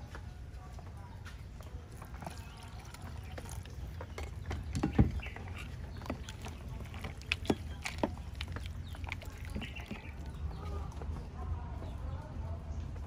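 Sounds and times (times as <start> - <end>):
spoon stirring wet salad: 1.4 - 10.8
liquid sloshing: 1.6 - 10.9.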